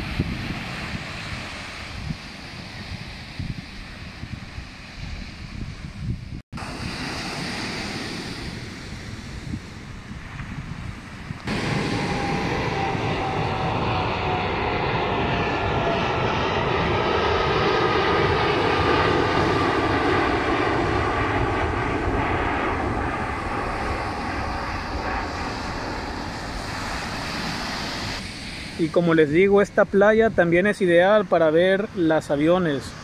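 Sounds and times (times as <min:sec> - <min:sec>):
airliner engine rush: 0:00.0 - 0:33.0
jet whine sliding down: 0:11.4 - 0:30.0.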